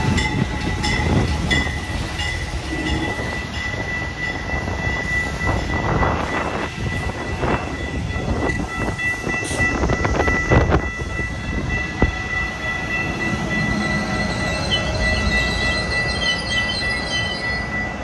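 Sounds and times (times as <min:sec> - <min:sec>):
wavering squeal: 0:02.4 - 0:06.7, 0:09.6 - 0:18.0.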